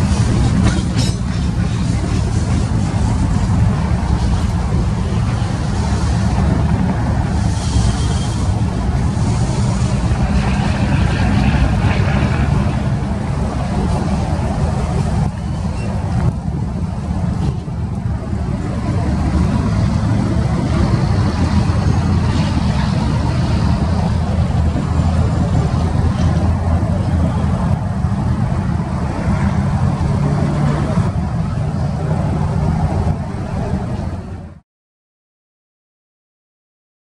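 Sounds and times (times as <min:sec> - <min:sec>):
diesel locomotive rumbling: 0:00.0 - 0:34.6.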